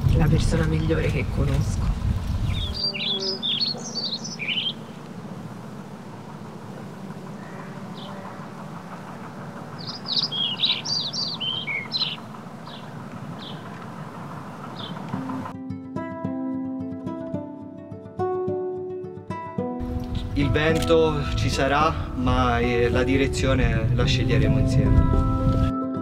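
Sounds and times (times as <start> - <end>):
songbird chirping: 0.4 - 15.5
steady low background noise: 2.5 - 15.5.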